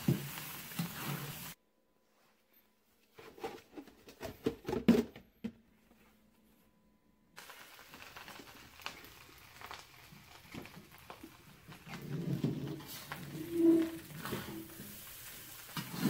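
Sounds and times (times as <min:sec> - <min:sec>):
spatula scraping a wok: 0:00.0 - 0:01.6, 0:11.9 - 0:16.0
steady hiss: 0:00.0 - 0:01.6, 0:07.4 - 0:16.0.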